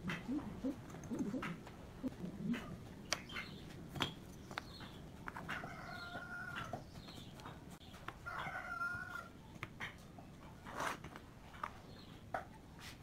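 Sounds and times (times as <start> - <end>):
rooster crowing: 5.6 - 6.7, 8.2 - 9.3.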